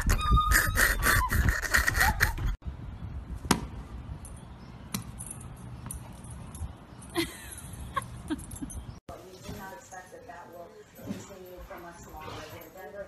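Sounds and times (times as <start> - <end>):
tennis ball bouncing on pavement: 3.4 - 3.8, 4.9 - 5.3.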